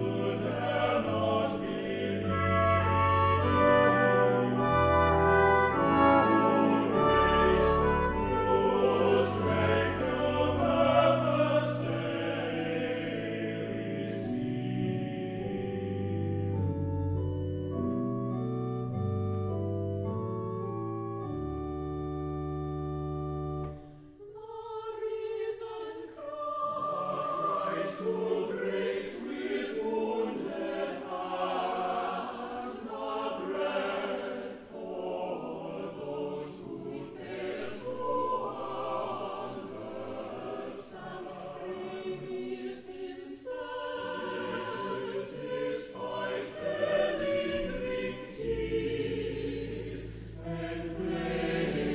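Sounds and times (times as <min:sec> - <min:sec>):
organ chords: 0:00.0 - 0:24.0, 0:44.2 - 0:51.9
church choir singing: 0:00.0 - 0:51.9.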